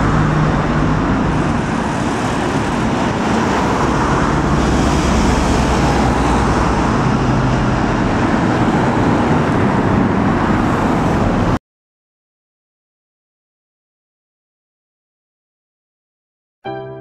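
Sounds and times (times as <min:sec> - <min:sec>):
diesel locomotive engine running: 0:00.0 - 0:11.5
road traffic noise: 0:00.0 - 0:11.6.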